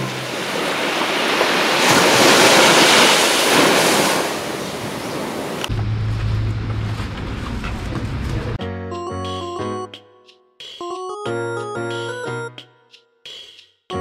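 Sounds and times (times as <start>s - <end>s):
waves washing onto beach: 0.0s - 5.7s.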